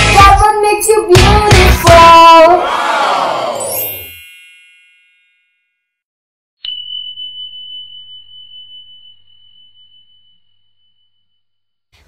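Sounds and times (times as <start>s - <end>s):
music: 0.0s - 2.4s
bright ding: 6.6s - 11.4s.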